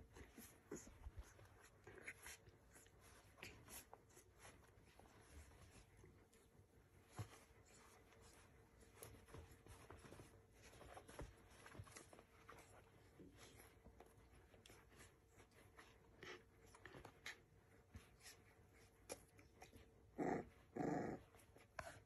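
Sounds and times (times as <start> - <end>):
soft rustling on blanket: 0.0 - 22.0
dog growls: 20.1 - 21.4.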